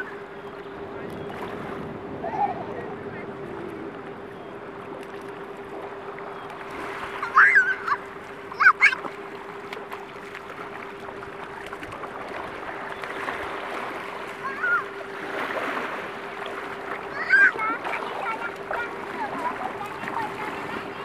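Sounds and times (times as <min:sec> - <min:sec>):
faint steady hum: 0:00.0 - 0:21.0
surf and shallow water: 0:00.0 - 0:21.0
children squealing: 0:07.2 - 0:09.0.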